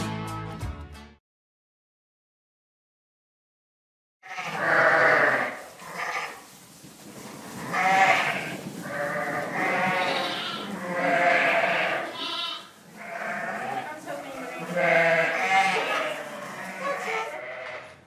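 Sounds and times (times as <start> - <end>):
sheep bleating: 4.2 - 6.4, 7.5 - 18.0.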